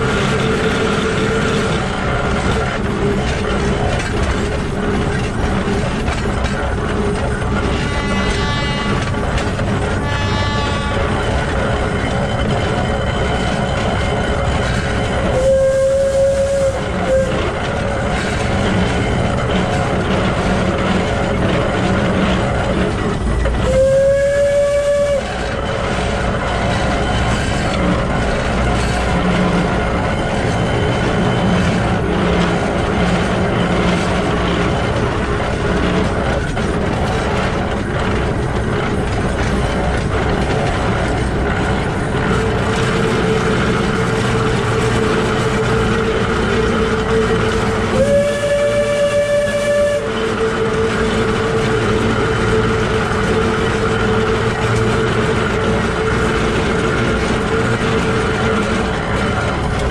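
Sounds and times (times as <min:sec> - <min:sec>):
steam locomotive gears and wheels: 0:00.0 - 0:59.9
steam whistle: 0:07.7 - 0:09.2, 0:10.0 - 0:11.3, 0:15.2 - 0:17.5, 0:23.6 - 0:25.6, 0:47.1 - 0:52.9.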